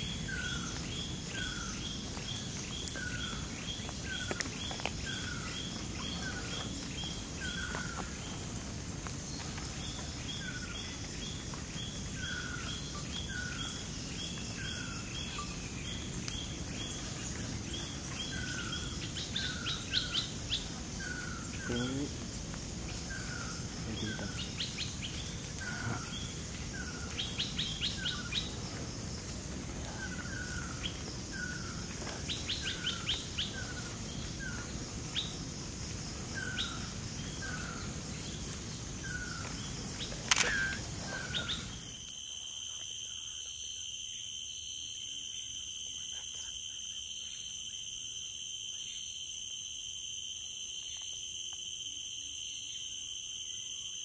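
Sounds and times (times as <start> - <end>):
sharp click: 40.3 - 40.8.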